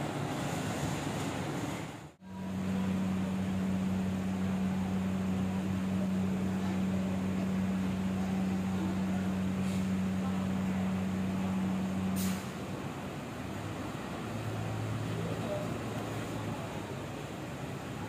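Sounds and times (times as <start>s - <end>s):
bus engine idling: 0.0s - 18.0s
short air hiss: 9.6s - 9.9s, 12.1s - 12.6s.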